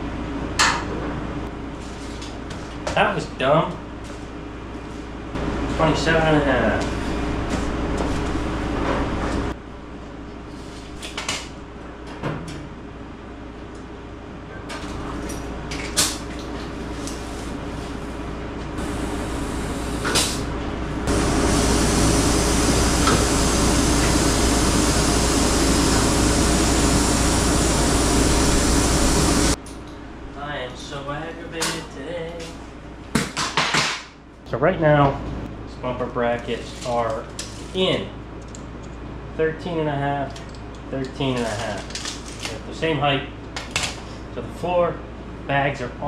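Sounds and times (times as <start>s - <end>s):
air suspension humming and hissing: 16.0s - 29.6s.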